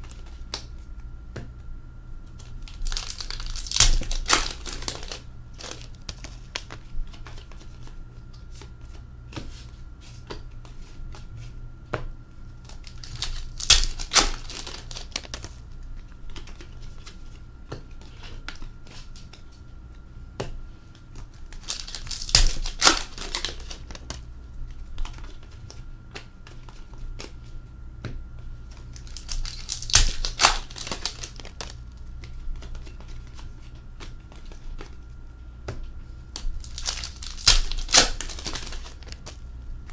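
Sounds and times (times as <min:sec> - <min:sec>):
foil card pack ripping open: 0:02.6 - 0:05.9, 0:12.7 - 0:15.5, 0:21.5 - 0:24.1, 0:29.0 - 0:31.8, 0:36.5 - 0:39.4.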